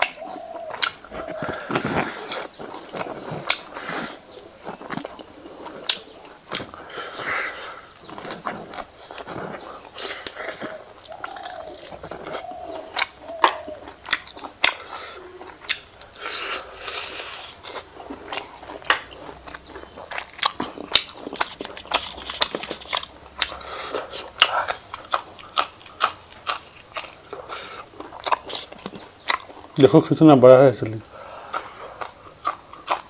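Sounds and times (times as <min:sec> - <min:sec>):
person chewing with lip smacks: 0:00.0 - 0:29.8, 0:30.9 - 0:33.0.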